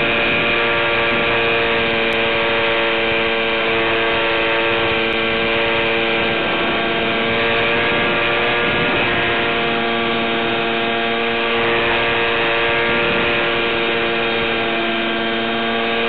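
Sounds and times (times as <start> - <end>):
electric model plane motor buzz: 0.0 - 16.0.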